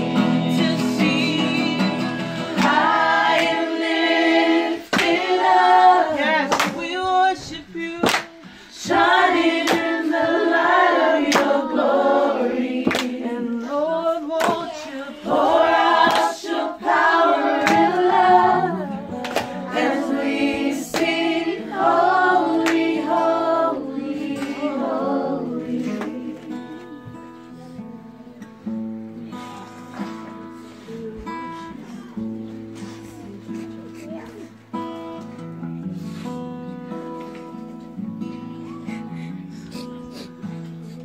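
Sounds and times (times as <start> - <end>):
group of people singing: 0.0 - 27.8
strummed acoustic guitar: 0.0 - 41.0.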